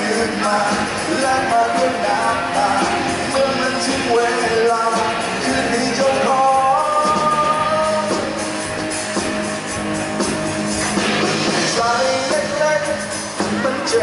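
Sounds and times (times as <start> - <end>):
man singing: 0.0 - 8.4, 11.6 - 14.0
rock band playing: 0.0 - 14.0.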